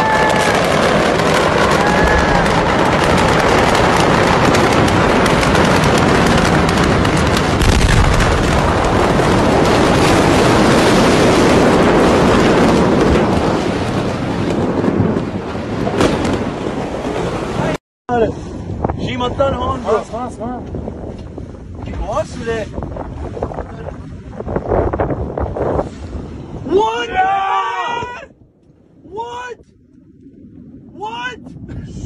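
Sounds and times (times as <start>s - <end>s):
fireworks crackling and popping: 0.0s - 16.5s.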